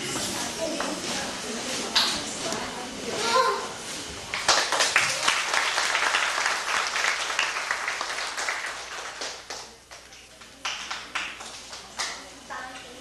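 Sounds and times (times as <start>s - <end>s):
group of people applauding: 4.3s - 12.2s.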